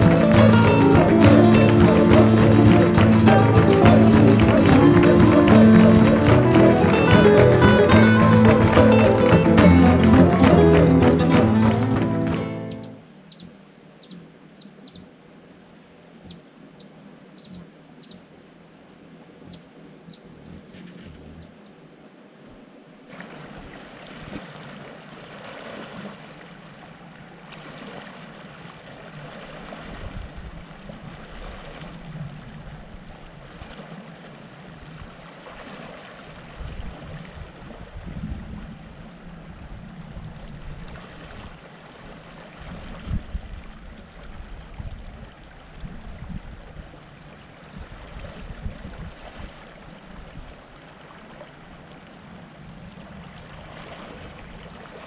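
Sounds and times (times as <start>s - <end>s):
river rushing over rocks: 0.0s - 12.8s
wind rumbling on microphone: 29.2s - 35.3s, 36.3s - 55.0s.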